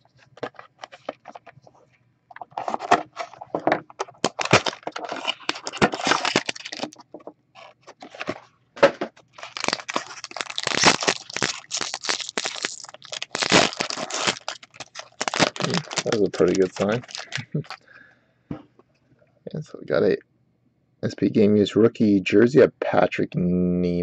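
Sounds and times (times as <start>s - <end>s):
wrapper tearing open: 4.1s - 7.0s, 9.3s - 17.8s.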